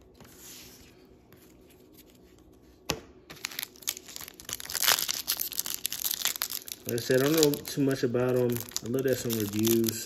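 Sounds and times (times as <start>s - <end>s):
foil wrapper crinkling: 3.3s - 10.0s.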